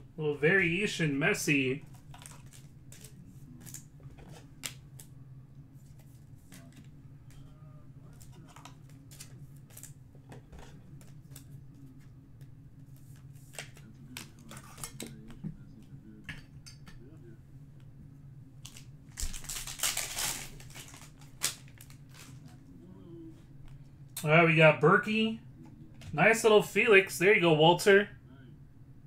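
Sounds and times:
foil wrapper crinkling: 1.9 - 3.9, 18.6 - 22.6.

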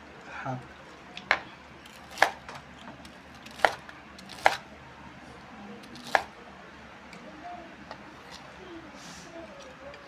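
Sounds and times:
knife chopping through crispy cutlet: 1.3 - 2.6, 3.4 - 4.6, 6.0 - 6.3.

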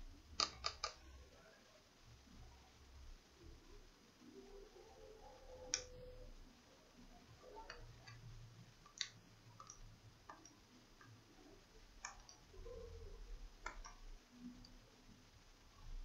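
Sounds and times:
small parts clicking and tapping: 0.4 - 1.0, 7.4 - 12.8.

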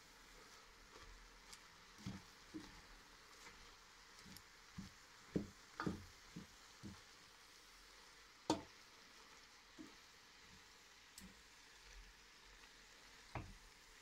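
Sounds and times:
spinach sizzling: 0.0 - 14.0
wooden spoon knocking a pot: 4.8 - 7.0, 8.5 - 8.7, 13.4 - 13.6.

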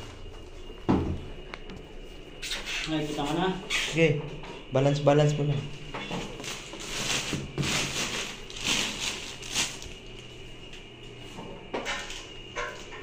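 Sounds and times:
plastic wrapping crinkling: 6.2 - 10.4.

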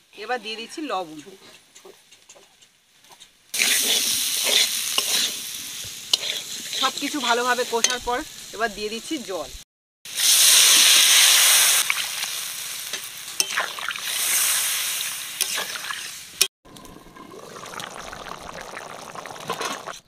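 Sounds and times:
metal spatula scraping a pan: 1.2 - 8.1, 15.4 - 16.2
water sizzling in hot oil: 2.8 - 20.0
curry boiling: 3.5 - 8.6, 10.1 - 20.0.

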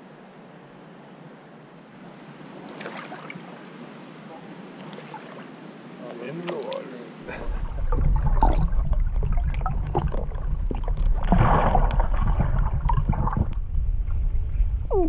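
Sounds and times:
underwater river rumble: 1.7 - 6.0, 6.7 - 15.0
water rushing: 1.9 - 13.7
underwater clicks and crackles: 6.1 - 14.3.

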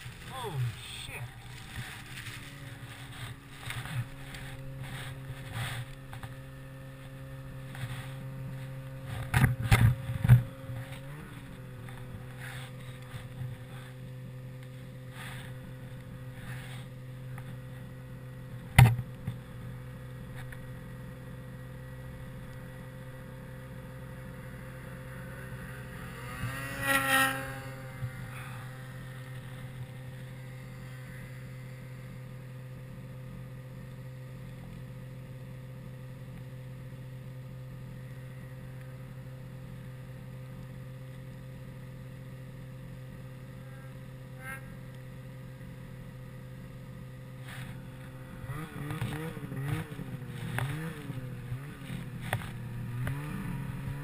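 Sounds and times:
snowmobile engine running: 0.0 - 54.0.

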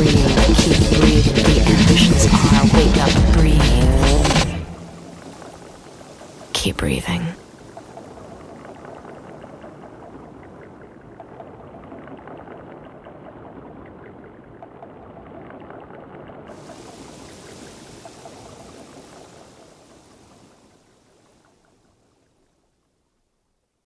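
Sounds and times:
watery hiss with crackles: 16.5 - 21.9.

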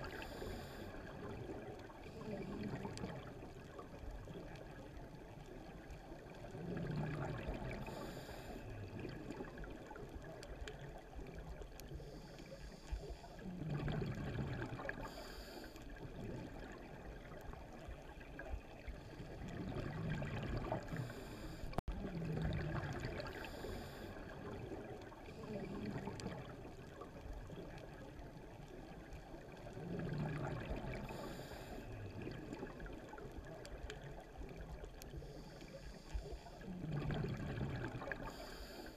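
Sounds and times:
underwater bubbling rush: 0.0 - 38.9
diver breathing through regulator: 7.8 - 8.7, 15.0 - 15.9, 20.8 - 21.8, 23.3 - 24.3, 31.0 - 32.0, 38.2 - 38.9.

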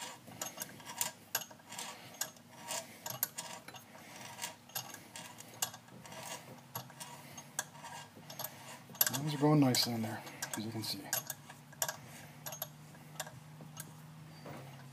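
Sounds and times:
ratcheting tap wrench clicking: 10.4 - 13.9.

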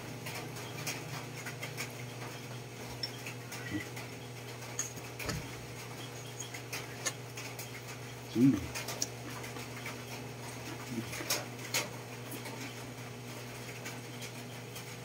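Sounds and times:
steady low hum: 0.0 - 15.0
person chewing food: 4.6 - 7.7.

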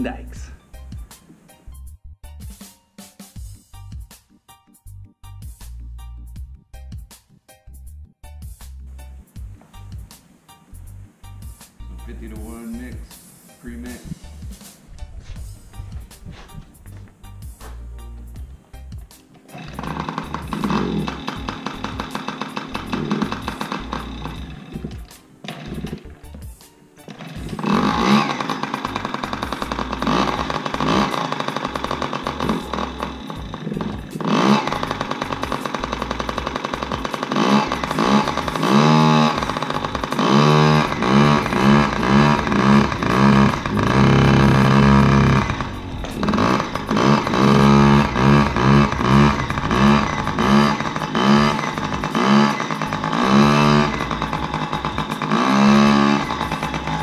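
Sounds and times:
small two-stroke engine revving: 19.5 - 26.2, 27.0 - 57.0.

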